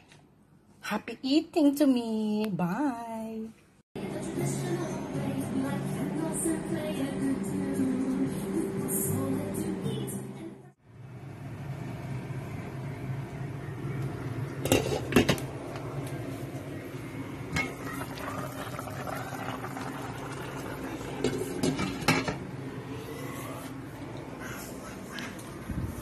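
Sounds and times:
kitchen appliance humming: 11.2s - 24.8s
kitchenware clattering: 14.6s - 15.5s, 17.5s - 18.8s, 21.1s - 22.4s.

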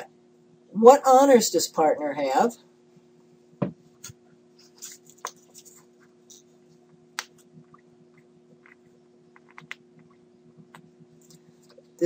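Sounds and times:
low electrical hum: 0.0s - 12.0s
keyboard and mouse clicks: 8.6s - 11.4s.

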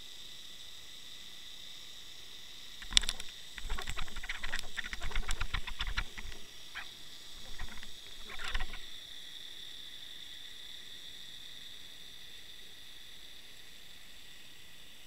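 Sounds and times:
steady high whine: 2.6s - 15.0s
camera housing scraping seabed: 2.8s - 9.0s.

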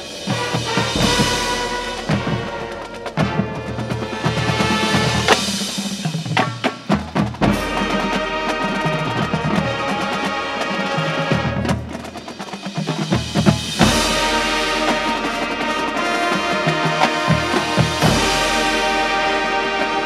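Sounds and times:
sharp drum hits: 0.0s - 8.0s
marching band playing chords: 0.0s - 20.0s.

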